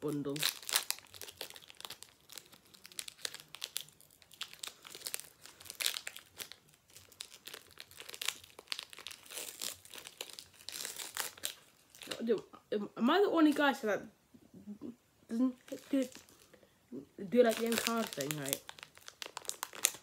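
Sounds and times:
foil wrapper crinkling and tearing: 0:00.0 - 0:12.3, 0:15.6 - 0:16.5, 0:17.4 - 0:20.0.

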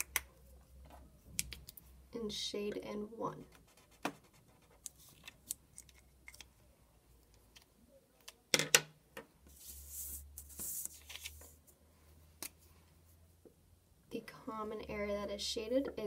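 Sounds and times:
highlighter scratching paper: 0:03.6 - 0:04.9
paper sliding and rustling: 0:09.5 - 0:11.6.

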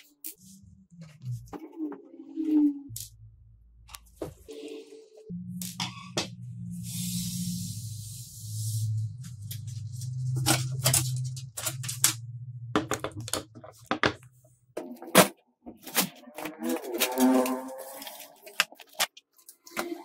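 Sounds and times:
plastic creaking and clattering: 0:10.2 - 0:20.0.

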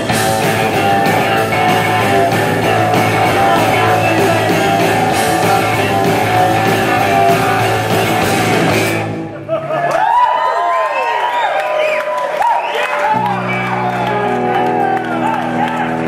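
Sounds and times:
drums and cymbals: 0:00.0 - 0:09.2
live rock band playing: 0:00.0 - 0:09.5, 0:13.0 - 0:16.0
electric guitars: 0:00.0 - 0:10.1, 0:13.0 - 0:16.0.

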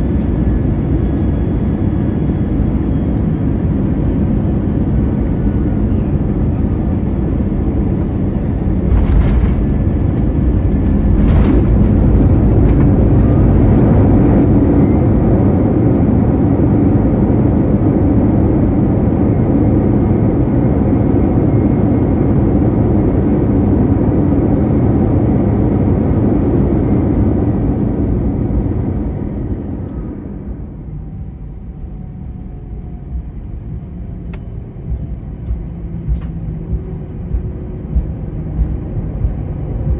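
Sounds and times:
jet engines roaring: 0:00.0 - 0:39.9
runway rumble: 0:05.5 - 0:15.6
jet landing thumps: 0:08.7 - 0:14.2, 0:34.3 - 0:39.9.

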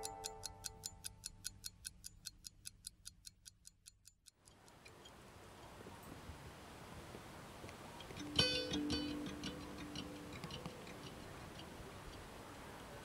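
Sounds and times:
clock ticking quickly: 0:00.0 - 0:05.0, 0:08.1 - 0:12.2
faint hiss: 0:04.8 - 0:13.0.

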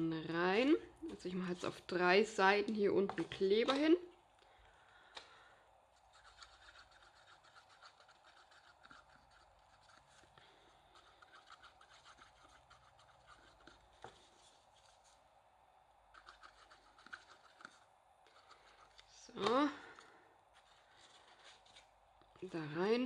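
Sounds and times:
glue rubbed onto cardstock: 0:06.1 - 0:10.3, 0:10.9 - 0:14.9.

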